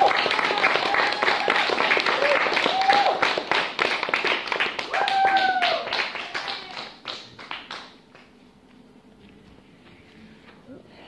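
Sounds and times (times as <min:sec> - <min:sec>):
person cheering: 0:00.0 - 0:03.3, 0:04.9 - 0:06.9
audience applauding: 0:00.0 - 0:08.3.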